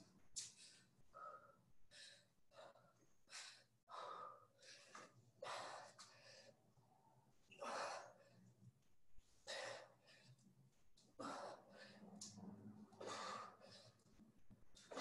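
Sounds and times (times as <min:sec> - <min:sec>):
person breathing hard: 0:00.4 - 0:06.6, 0:09.4 - 0:10.4, 0:11.2 - 0:12.4, 0:13.0 - 0:14.1.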